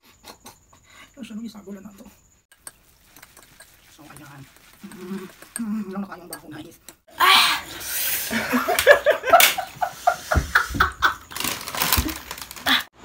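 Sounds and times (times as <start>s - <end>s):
people laughing loudly: 8.3s - 11.6s.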